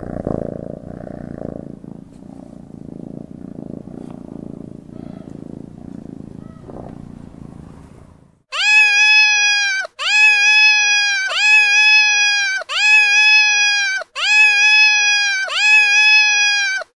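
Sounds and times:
cat meowing: 4.9 - 5.6, 6.3 - 7.0, 8.5 - 17.0.

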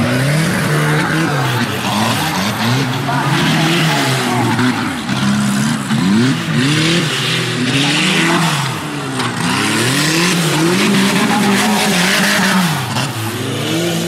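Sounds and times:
truck engines revving hard: 0.0 - 14.0.

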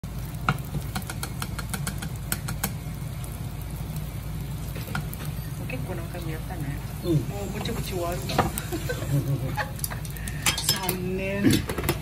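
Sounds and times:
egg frying in a pan: 0.0 - 12.0
gas burner low rumble: 0.0 - 12.0
sharp clicks and pops: 0.5 - 2.8.

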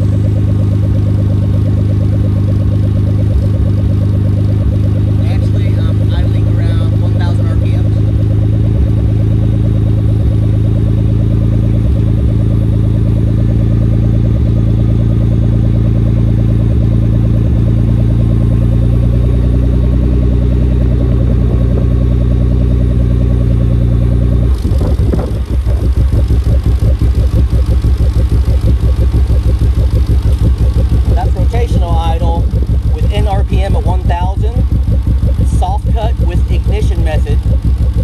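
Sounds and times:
car engine idling: 0.0 - 38.0.

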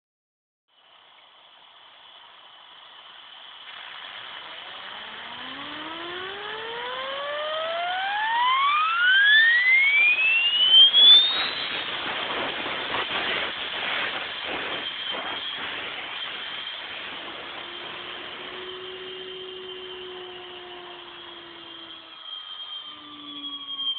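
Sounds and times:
grinder spindle whine: 0.7 - 23.9
high hiss: 10.5 - 23.9.

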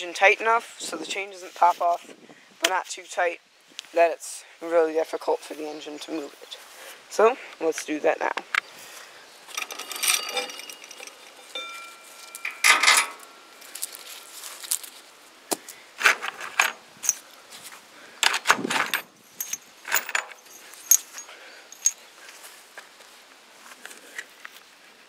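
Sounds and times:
metal piece ringing: 9.5 - 14.1
metal chain rattling and clinking: 9.5 - 14.4, 16.1 - 17.2, 18.2 - 22.0.

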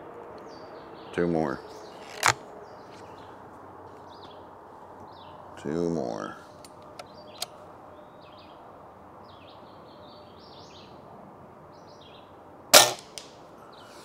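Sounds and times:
birds chirping: 0.0 - 14.0
air rifle shot: 12.8 - 13.3.

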